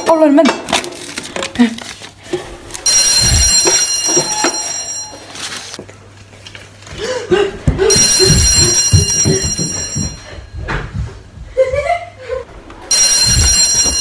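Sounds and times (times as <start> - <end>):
high-pitched electronic alarm: 2.8 - 5.2, 7.9 - 10.2, 12.9 - 14.0
running footsteps on wooden floor: 6.9 - 12.3.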